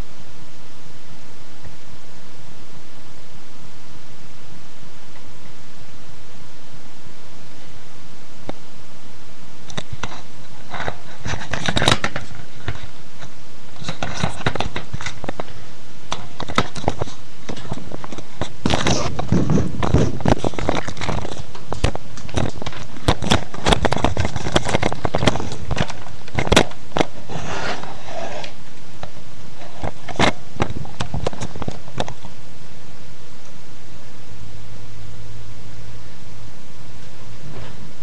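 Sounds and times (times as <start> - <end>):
rustling and handling noise: 9.6 - 32.4.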